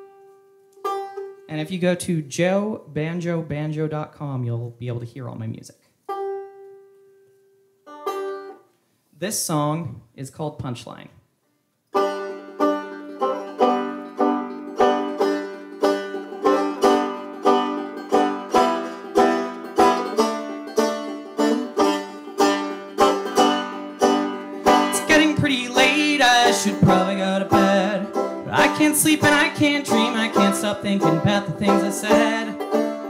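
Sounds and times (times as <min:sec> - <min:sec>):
banjo picking: 0:00.0 - 0:02.3, 0:06.0 - 0:07.2, 0:07.8 - 0:09.5, 0:11.9 - 0:33.0.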